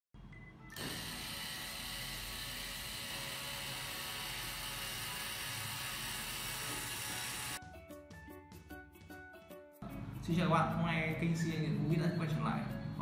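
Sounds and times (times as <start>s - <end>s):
linear actuators whirring: 0.8s - 7.6s.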